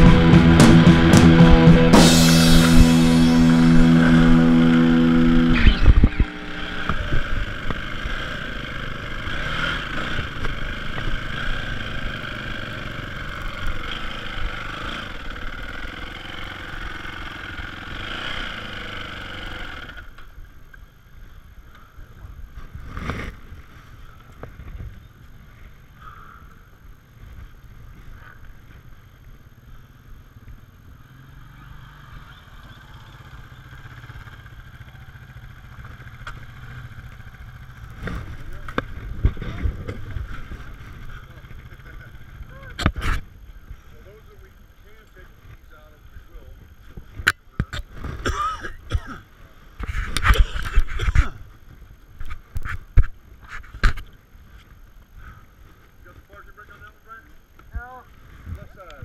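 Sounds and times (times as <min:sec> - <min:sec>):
rock music: 0:00.0 - 0:07.3
dirt bike engine: 0:00.0 - 0:59.0.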